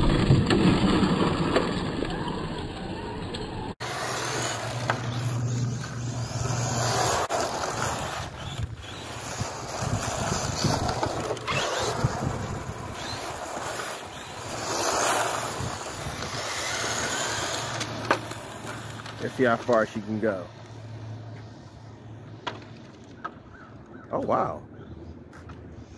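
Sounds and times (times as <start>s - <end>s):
rc car motor whine: 3.6s - 20.8s
wind noise on microphone: 7.7s - 13.4s, 14.4s - 17.5s.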